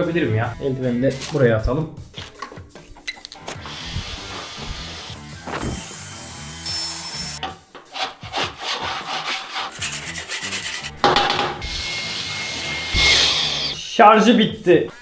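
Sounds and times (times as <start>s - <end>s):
vacuum nozzle scraping: 3.5s - 5.1s
handheld vacuum cleaner sucking: 3.5s - 7.4s, 11.6s - 13.9s.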